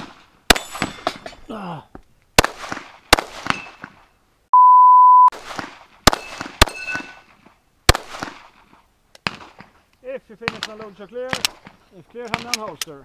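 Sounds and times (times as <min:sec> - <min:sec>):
pistol shots: 0:02.4 - 0:04.0, 0:05.3 - 0:07.3, 0:07.9 - 0:08.6
electronic beep: 0:04.5 - 0:05.3.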